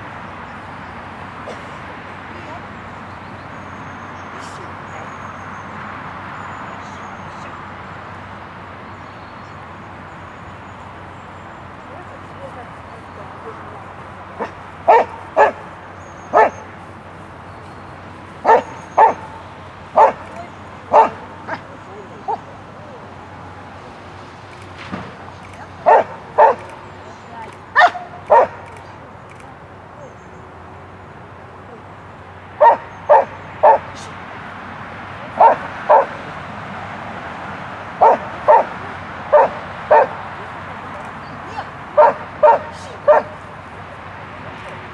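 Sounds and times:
dog barking: 14.4s - 15.7s, 16.3s - 16.7s, 18.4s - 22.5s, 25.8s - 26.8s, 27.8s - 28.8s, 32.6s - 34.1s, 35.4s - 36.2s, 38.0s - 40.3s, 42.0s - 43.4s.

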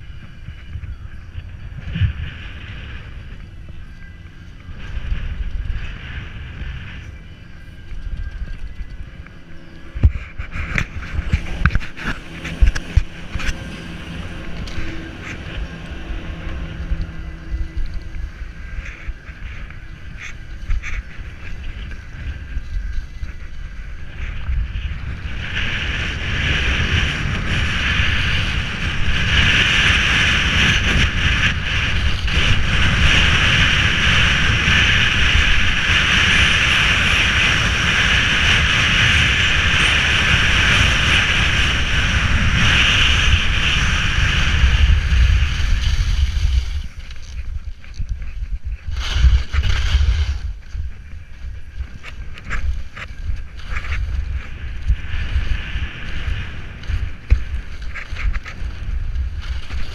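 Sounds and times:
wind rumbling on microphone: 0.0s - 59.9s
skis hissing over snow: 31.9s - 59.9s.

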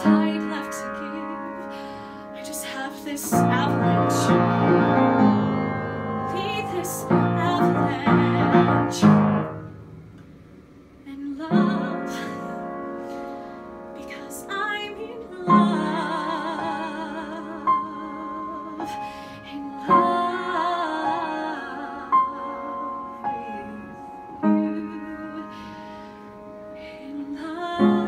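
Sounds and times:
woman singing ballad: 0.0s - 5.5s, 6.3s - 9.4s, 11.0s - 12.7s, 14.0s - 26.0s, 26.8s - 28.0s
piano chords: 0.0s - 28.0s.

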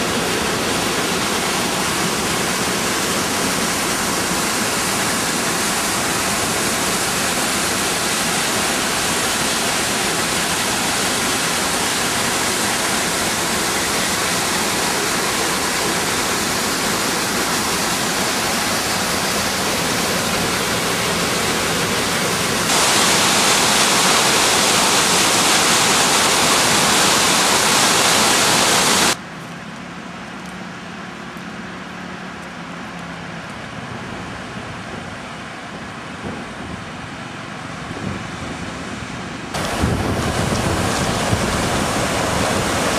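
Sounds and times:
floodwater rushing: 0.0s - 29.2s, 32.6s - 42.9s.

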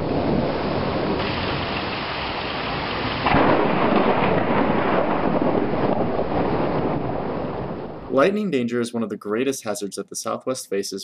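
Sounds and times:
steady rain: 0.0s - 8.5s
thunder clap: 0.0s - 8.6s
thunder rumbling: 0.0s - 9.1s.

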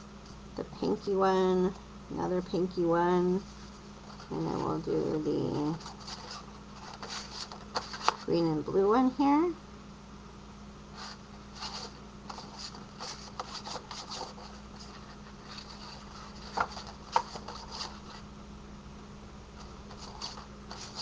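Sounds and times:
paper rubbing and scraping: 3.5s - 8.3s, 10.9s - 18.2s, 19.6s - 21.0s.

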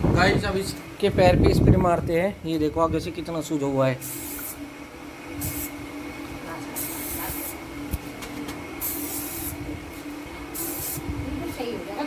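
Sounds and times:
steady low hum: 0.0s - 12.0s
aerosol spray can hissing: 4.0s - 4.6s, 5.4s - 5.8s, 6.7s - 7.6s, 8.8s - 9.6s, 10.5s - 11.1s.

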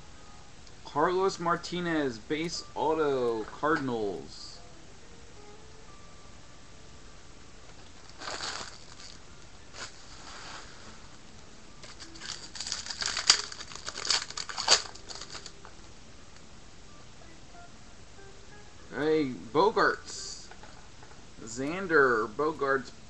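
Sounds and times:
foil wrapper crinkling and tearing: 7.9s - 10.8s, 11.8s - 15.6s.

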